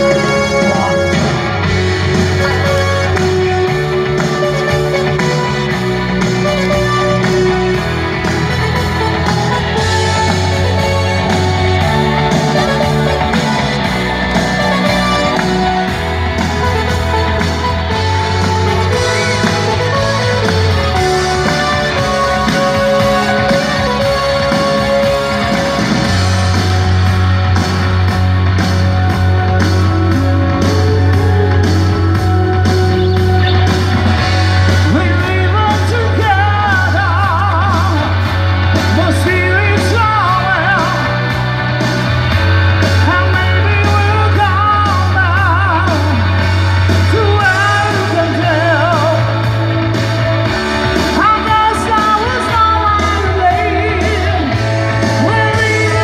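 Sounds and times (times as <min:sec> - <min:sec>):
deep bass line: 0:00.0 - 0:56.0
electric guitar: 0:00.0 - 0:56.0
steady drum beat: 0:00.0 - 0:56.0
person singing with vibrato: 0:29.1 - 0:41.6, 0:42.9 - 0:49.9, 0:50.5 - 0:56.0.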